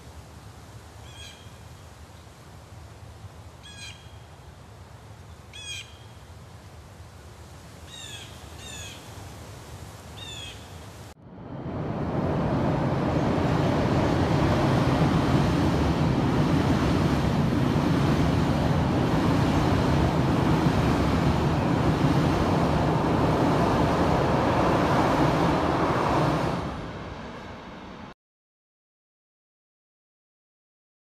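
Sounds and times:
train rumbling over bridge: 0:11.2 - 0:28.2.

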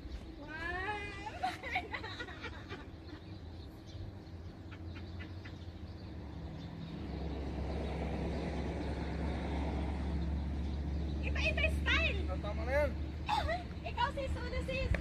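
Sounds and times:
car engine humming: 0:00.0 - 0:15.0.

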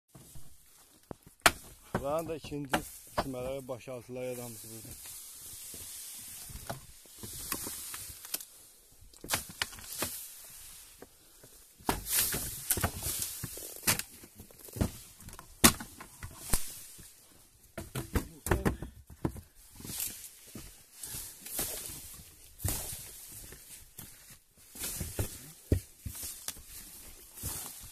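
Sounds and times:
reeds rustling and crackling: 0:00.1 - 0:17.5, 0:19.6 - 0:27.9
sharp cracks and knocks: 0:09.2 - 0:10.2, 0:11.8 - 0:16.8.

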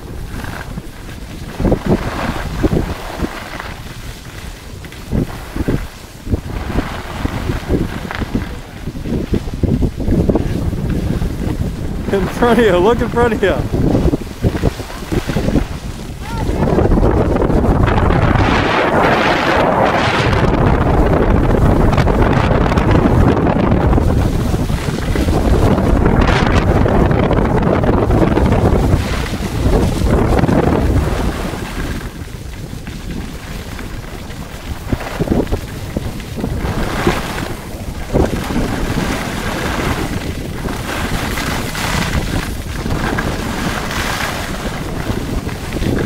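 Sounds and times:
wind on microphone: 0:00.0 - 0:46.0
skis hissing over snow: 0:00.2 - 0:17.4, 0:28.1 - 0:46.0.

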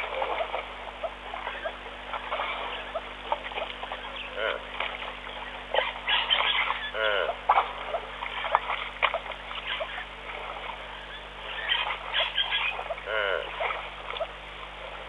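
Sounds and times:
splashing and squelching in mud: 0:00.0 - 0:10.8
birds chirping: 0:00.0 - 0:14.4.

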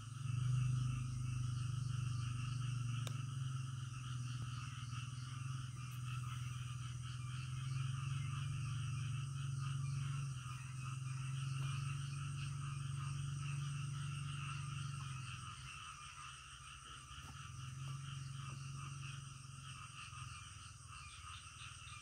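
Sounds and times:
steady high whine: 0:00.0 - 0:16.2
frogs pulsing drone: 0:00.0 - 0:22.0
frogs trilling calls: 0:00.0 - 0:22.0.

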